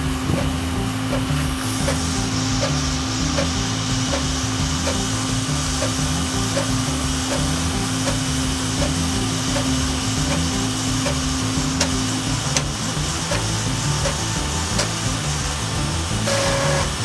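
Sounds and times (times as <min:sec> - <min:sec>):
steady hum: 0:00.0 - 0:17.0.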